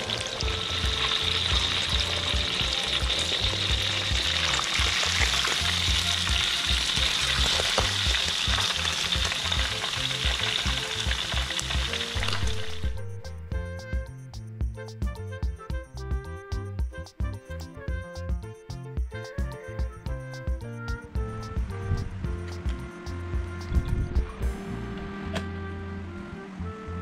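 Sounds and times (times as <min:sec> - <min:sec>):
fish sizzling in hot oil: 0:00.0 - 0:13.0.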